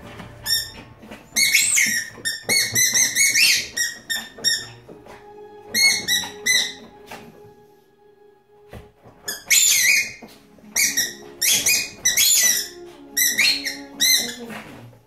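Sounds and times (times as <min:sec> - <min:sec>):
squeaky rubber toy squeaking: 0:00.0 - 0:07.4, 0:09.2 - 0:15.0.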